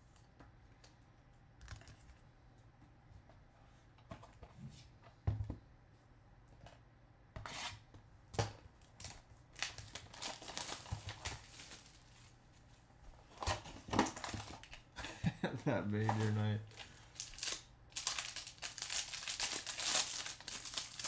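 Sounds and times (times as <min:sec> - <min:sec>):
cellophane crinkling and tearing: 0:08.9 - 0:12.4, 0:13.4 - 0:14.8, 0:16.0 - 0:21.0.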